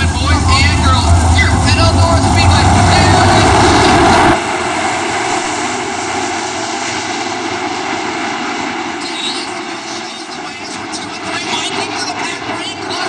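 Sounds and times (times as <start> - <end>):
race car engines droning: 0.0 - 13.0.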